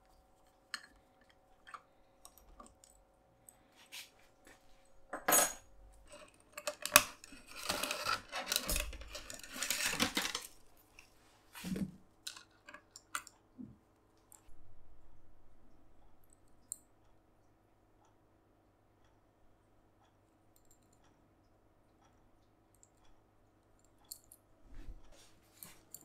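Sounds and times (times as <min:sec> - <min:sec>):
small hard parts clattering: 0:05.1 - 0:11.0.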